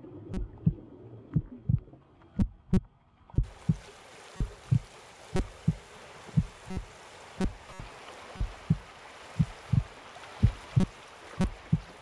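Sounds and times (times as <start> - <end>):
heavy heartbeat thumps: 0.3 - 0.8, 1.4 - 1.8, 2.4 - 2.8, 3.4 - 3.8, 6.4 - 6.8, 8.4 - 8.8, 9.4 - 10.9, 11.5 - 11.9.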